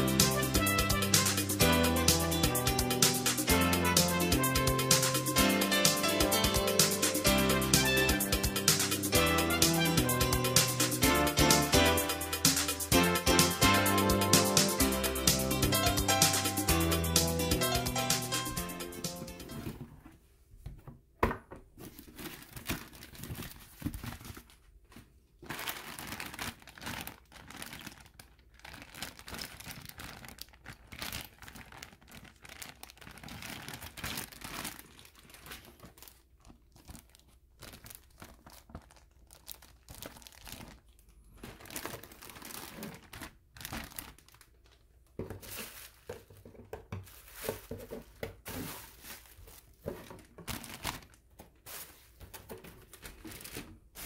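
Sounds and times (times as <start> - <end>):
plastic bags crinkling: 21.8 - 54.0.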